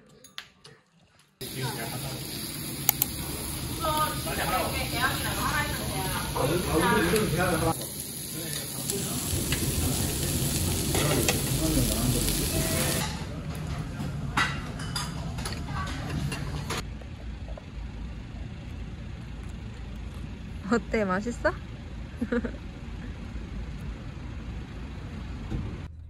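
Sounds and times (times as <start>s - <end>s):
meat sizzling on a grill: 1.4s - 13.0s
low street background rumble: 1.4s - 26.0s.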